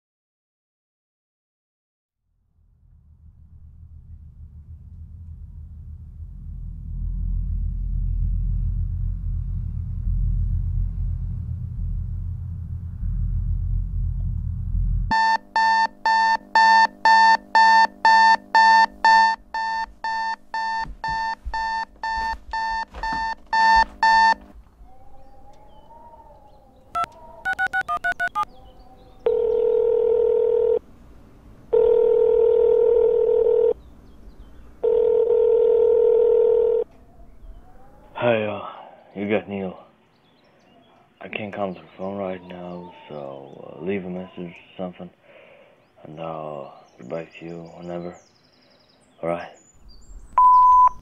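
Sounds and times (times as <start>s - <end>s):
digital alarm clock beeping: 15.1s - 24.4s, 27.0s - 28.4s
phone keypad tones: 15.1s - 24.4s, 27.0s - 28.4s
phone ringback tones: 15.1s - 24.4s, 27.0s - 28.4s, 29.2s - 30.8s, 31.7s - 33.8s, 34.8s - 36.8s.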